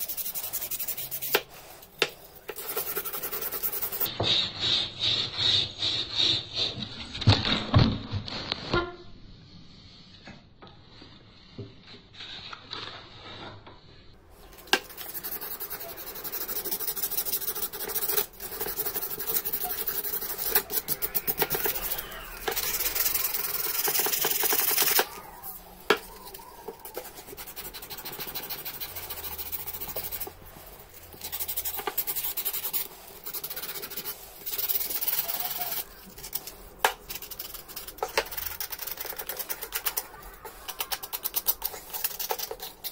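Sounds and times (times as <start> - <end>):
sandpaper rasping on wood: 0.0 - 6.7, 14.8 - 36.4.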